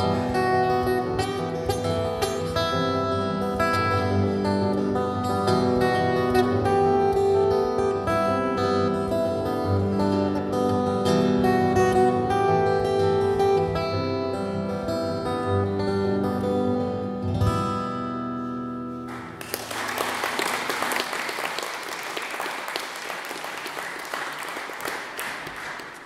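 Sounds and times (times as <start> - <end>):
acoustic guitar chords: 0.0 - 19.4
audience applauding: 19.1 - 26.0.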